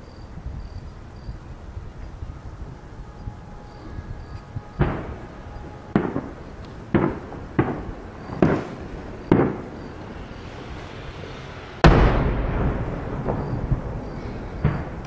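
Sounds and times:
rolling rumble: 0:00.0 - 0:15.0
firework shells booming: 0:03.0 - 0:15.0.

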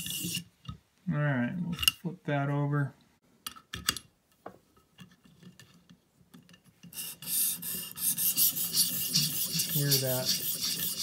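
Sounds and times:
sharpening stone rasping on knife: 0:00.0 - 0:00.5, 0:06.9 - 0:11.0.

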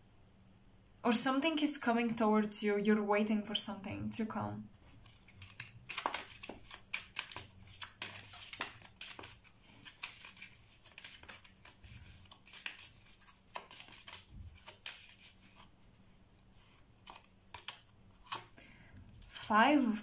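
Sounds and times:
cards being shuffled: 0:04.8 - 0:15.7, 0:16.6 - 0:18.6.

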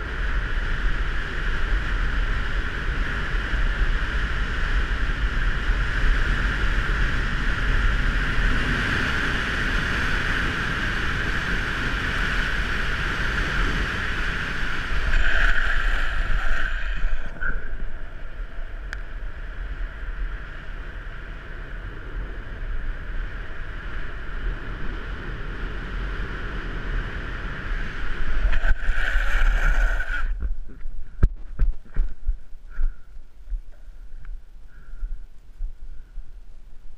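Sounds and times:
longboard wheels rolling on asphalt: 0:00.0 - 0:32.2
wind rushing: 0:12.8 - 0:18.9, 0:26.5 - 0:33.0.

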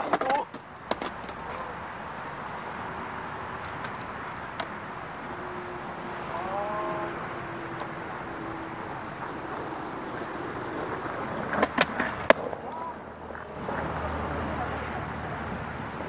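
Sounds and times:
distant traffic haze: 0:00.0 - 0:16.0
short rising call: 0:05.2 - 0:09.2.

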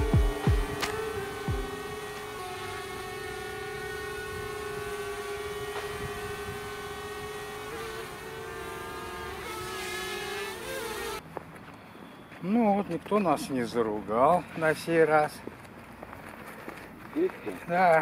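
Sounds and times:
drone propellers whining: 0:00.0 - 0:11.2.

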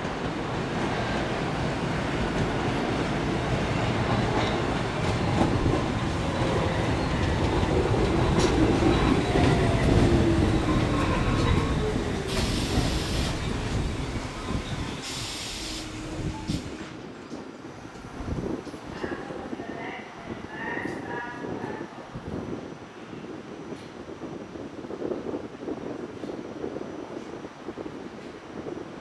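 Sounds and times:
steel wheels rumbling on rail: 0:00.0 - 0:29.0
short high hisses: 0:15.0 - 0:16.7.

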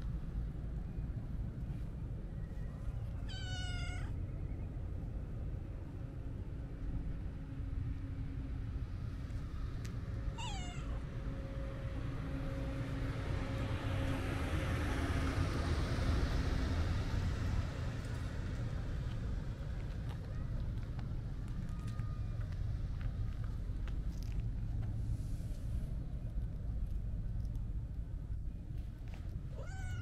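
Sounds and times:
cat meowing: 0:03.3 - 0:04.2, 0:10.4 - 0:11.0, 0:29.5 - 0:30.0.

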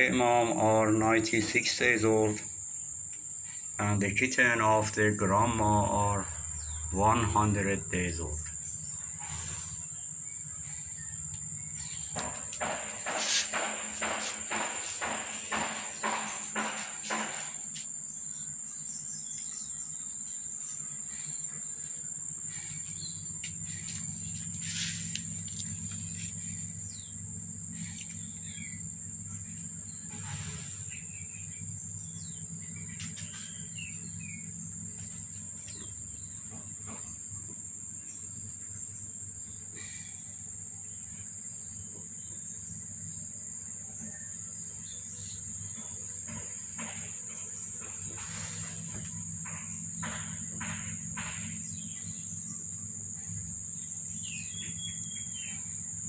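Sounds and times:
insects droning: 0:00.0 - 0:56.0
faint bird chirps: 0:05.4 - 0:07.9.

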